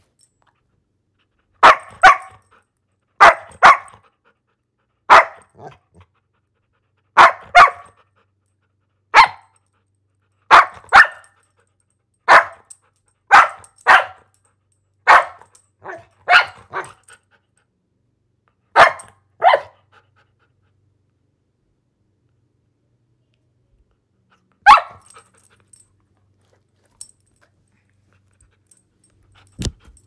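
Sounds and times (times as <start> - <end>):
dog barking: 1.6 - 2.4, 3.2 - 4.0, 5.1 - 5.8, 7.2 - 8.0, 9.1 - 9.5, 10.5 - 11.4, 12.3 - 12.7, 13.3 - 14.3, 15.0 - 17.0, 18.7 - 19.8, 24.6 - 25.2.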